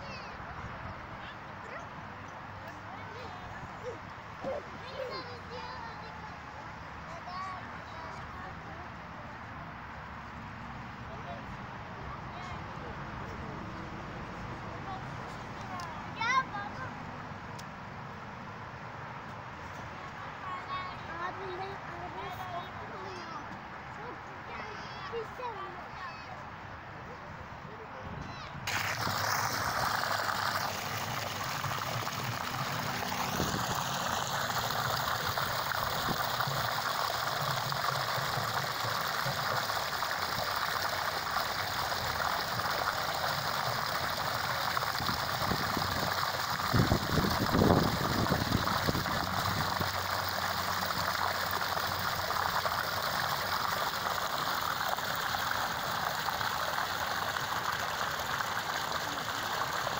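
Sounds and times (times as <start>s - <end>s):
water splashing into a pond: 28.6s - 59.9s.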